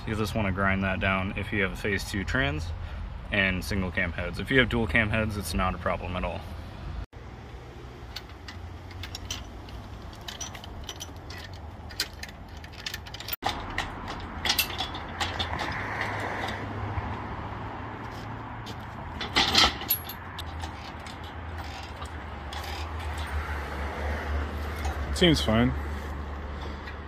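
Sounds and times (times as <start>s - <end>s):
hoist chain clinking and rattling: 8.0s - 16.7s, 18.1s - 27.0s
metal clicks: 8.0s - 16.7s.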